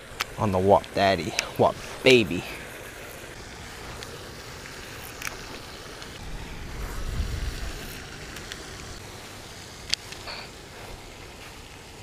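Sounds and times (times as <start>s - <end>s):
low rumble: 6.2s - 9.0s.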